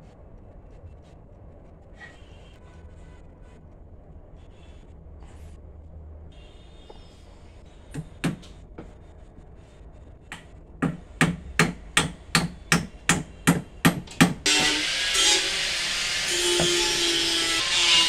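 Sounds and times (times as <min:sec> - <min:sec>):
hammer striking wooden chair: 0:10.3 - 0:14.8, 0:16.5 - 0:16.9.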